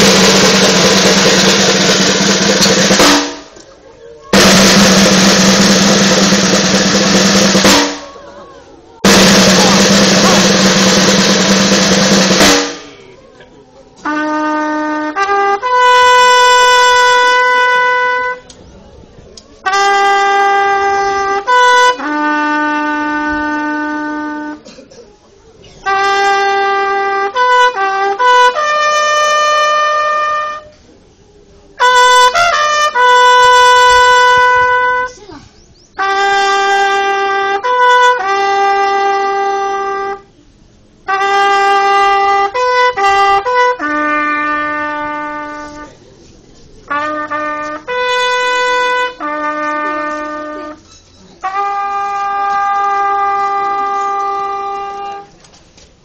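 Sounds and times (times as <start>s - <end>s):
solo trumpet bugle call: 9.0s - 13.0s, 14.0s - 18.5s, 19.6s - 24.6s, 25.8s - 30.8s, 31.8s - 35.2s, 36.0s - 40.3s, 41.1s - 46.0s, 46.9s - 55.3s.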